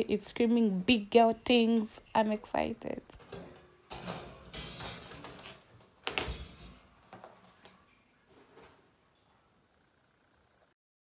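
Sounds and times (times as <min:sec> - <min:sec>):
wire dish rack parts clattering: 0:03.2 - 0:06.9.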